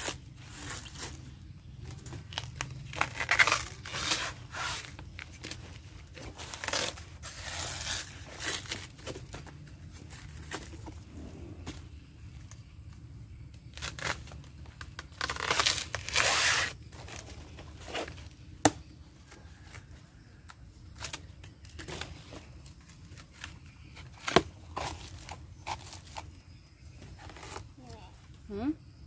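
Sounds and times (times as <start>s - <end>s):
knife cutting fibrous plant trunk: 0.0s - 10.9s, 13.5s - 19.9s, 20.8s - 26.3s, 27.0s - 27.9s
plant sheaths tearing: 1.9s - 9.5s, 13.7s - 18.8s.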